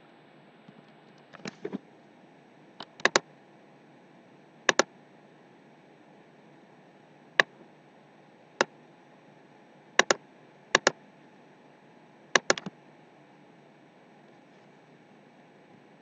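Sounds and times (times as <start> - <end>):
computer mouse clicks: 2.8 - 3.2, 4.7 - 4.9, 10.0 - 11.0, 12.4 - 12.8.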